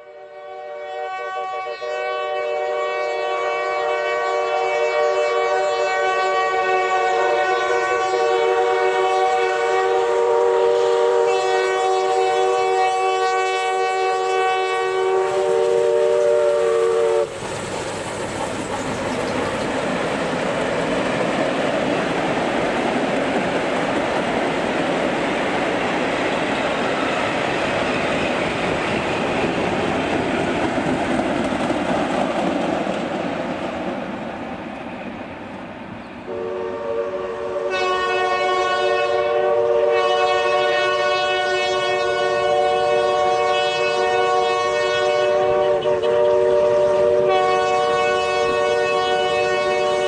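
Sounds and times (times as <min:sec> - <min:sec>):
steam locomotive whistle: 0:00.0 - 0:17.4, 0:36.3 - 0:50.0
train coaches rolling past: 0:01.0 - 0:50.0.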